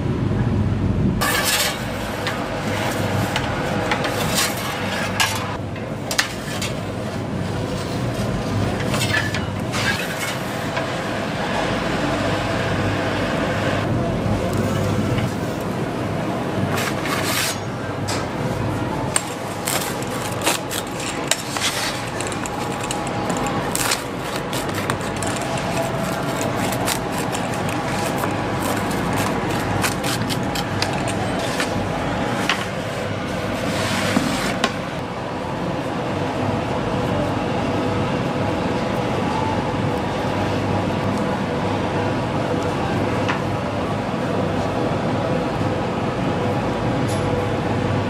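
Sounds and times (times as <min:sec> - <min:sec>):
steady background hum: 0:00.0 - 0:48.0
metal utensils scraping and clicking: 0:01.2 - 0:06.8, 0:08.7 - 0:10.8, 0:19.1 - 0:33.0.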